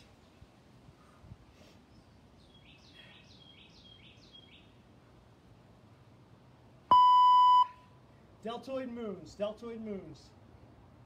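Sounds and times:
faint outdoor background noise: 0.0s - 11.0s
bird chirping: 1.9s - 4.8s.

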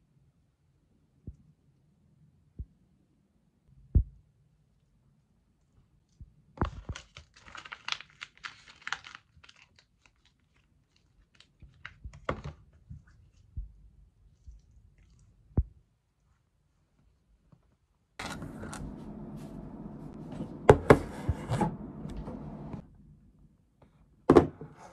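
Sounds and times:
foil pouch crinkling: 6.6s - 12.1s
knock on tabletop: 20.6s - 21.7s, 24.3s - 24.7s.

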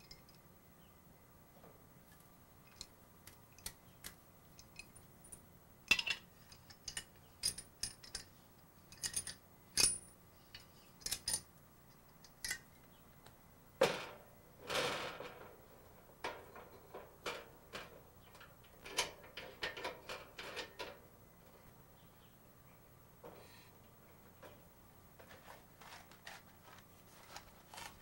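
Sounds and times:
metal clicks and clinks: 4.6s - 8.3s, 8.9s - 11.5s
handling noises: 23.2s - 28.0s.

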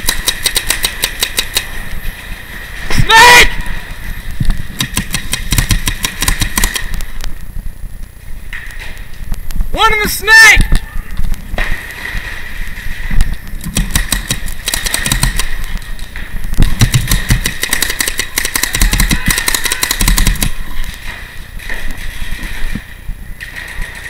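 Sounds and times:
paintball markers firing: 0.0s - 1.8s, 4.7s - 7.2s, 13.6s - 15.8s, 16.6s - 20.6s.

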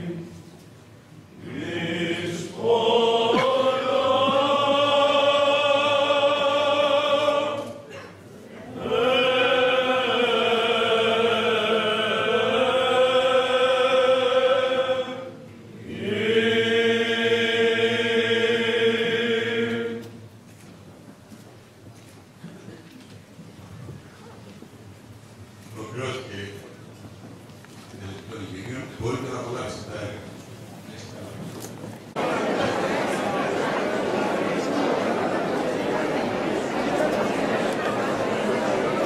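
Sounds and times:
group chanting: 1.4s - 7.8s, 8.7s - 20.0s.

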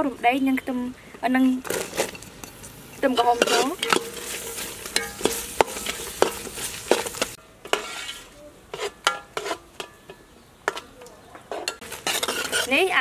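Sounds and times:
sauce sizzling in a pot: 1.6s - 8.3s
metal ladle clinking on pot: 2.0s - 8.0s, 8.8s - 10.9s, 11.5s - 12.7s.

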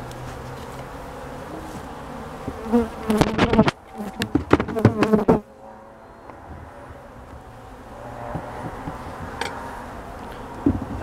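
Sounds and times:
bees buzzing: 0.0s - 11.0s
bees buzzing close to microphone: 0.0s - 11.0s
sharp knocks: 3.2s - 5.4s, 8.2s - 9.8s, 10.6s - 11.0s.

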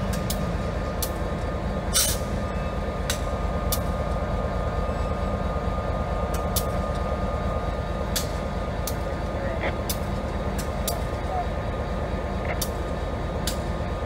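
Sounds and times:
diesel locomotive rumbling: 0.0s - 14.0s
sharp clicks: 12.5s - 12.8s.

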